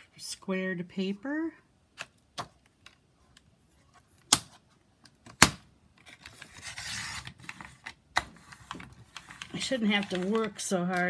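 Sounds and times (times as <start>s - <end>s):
blade scraping along paper: 6.5s - 7.7s.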